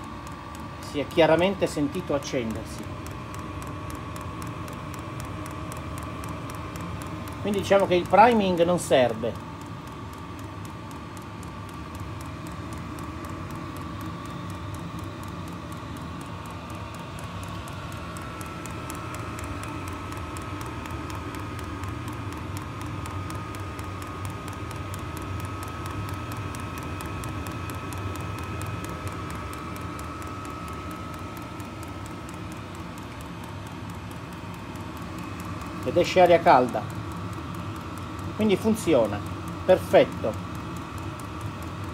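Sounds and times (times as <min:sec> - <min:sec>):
fan whine: 0:00.0 - 0:41.9
fast even ticking: 0:00.0 - 0:41.9
heater blower rushing: 0:00.0 - 0:41.9.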